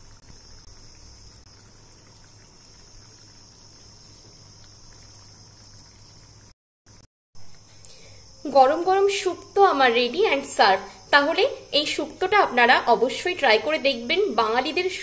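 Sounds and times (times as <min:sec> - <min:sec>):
gas stove hiss: 0:00.0 - 0:04.6, 0:07.0 - 0:15.0
curry bubbling: 0:00.0 - 0:06.6.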